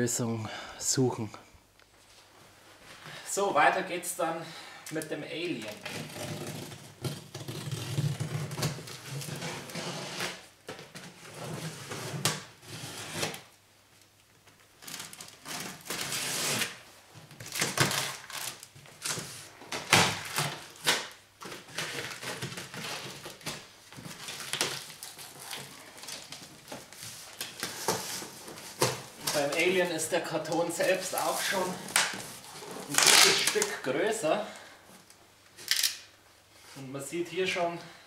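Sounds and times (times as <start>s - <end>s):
knife slitting packing tape: 15.0s - 16.8s, 17.5s - 23.6s, 32.9s - 33.7s, 35.6s - 36.1s
cardboard flaps rustling and scraping: 17.3s - 33.8s.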